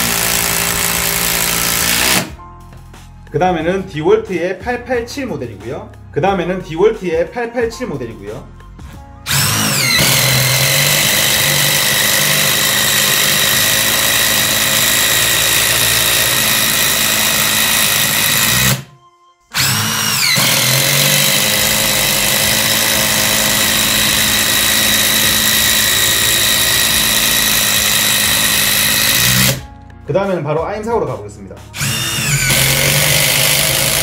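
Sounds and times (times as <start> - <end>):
impact driver driving screw: 0.0 - 2.3, 9.3 - 18.9, 19.5 - 29.7, 31.8 - 34.0.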